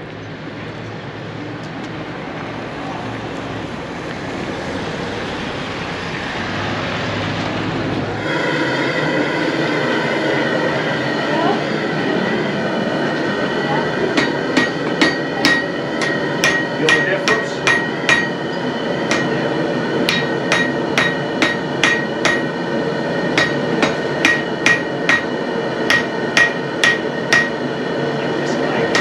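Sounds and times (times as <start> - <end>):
hammer striking metal on anvil: 14.1 - 18.4, 19.1 - 19.4, 20.1 - 22.5, 23.3 - 27.6.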